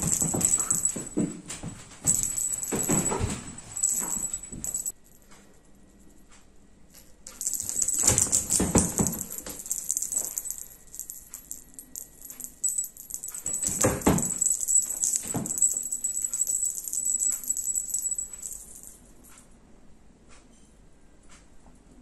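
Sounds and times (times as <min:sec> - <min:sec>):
rapid metallic jingling: 0:00.0 - 0:01.4, 0:02.0 - 0:05.2, 0:07.0 - 0:19.3
heavier knocks: 0:00.0 - 0:04.9, 0:07.4 - 0:11.0, 0:13.0 - 0:18.7.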